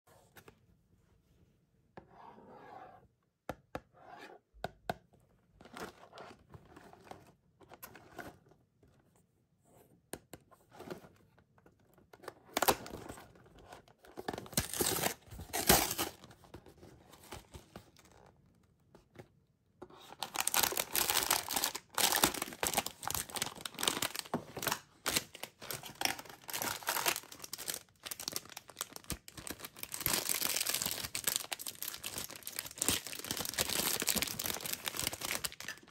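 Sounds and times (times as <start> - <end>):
plastic wrapper crinkling: 20.2 - 35.9.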